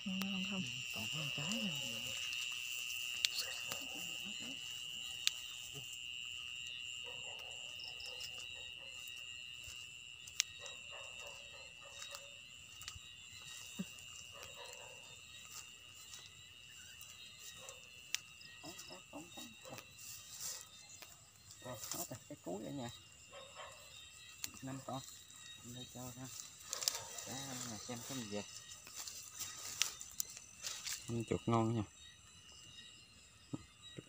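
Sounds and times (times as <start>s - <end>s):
insects chirring: 0.0s - 34.0s
footsteps through grass: 8.4s - 22.2s, 25.0s - 31.3s.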